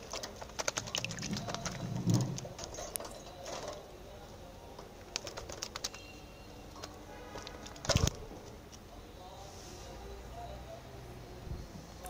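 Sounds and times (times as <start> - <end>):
bird splashing in water: 0.0 - 2.4.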